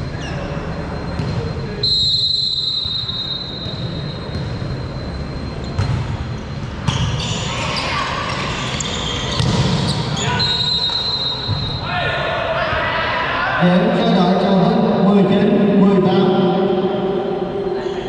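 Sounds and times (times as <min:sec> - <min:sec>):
referee whistle blowing: 0:01.8 - 0:04.2, 0:10.2 - 0:11.9.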